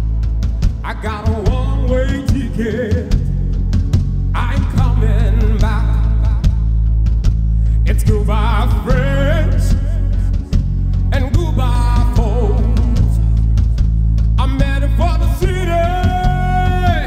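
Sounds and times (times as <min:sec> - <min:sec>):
drum hits: 0:00.0 - 0:17.0
heavy bass line: 0:00.0 - 0:17.0
person singing with vibrato: 0:00.8 - 0:03.4, 0:07.8 - 0:13.6, 0:14.4 - 0:17.0.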